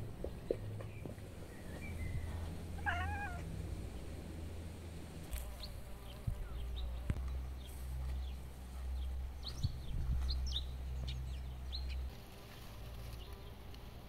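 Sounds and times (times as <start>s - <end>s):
cat meowing: 2.8s - 3.4s.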